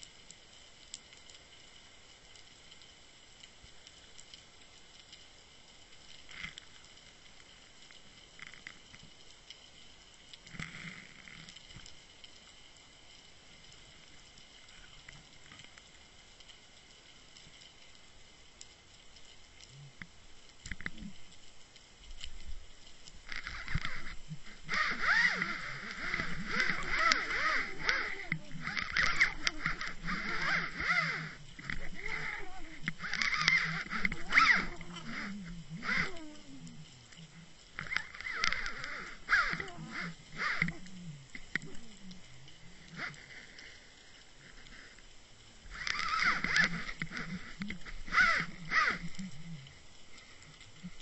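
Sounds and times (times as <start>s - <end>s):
faint underwater hiss: 0.0s - 51.0s
underwater clicks and knocks: 20.0s - 21.2s, 22.1s - 42.3s
camera rattling scrape: 23.3s - 36.6s, 37.8s - 41.9s, 45.7s - 49.2s.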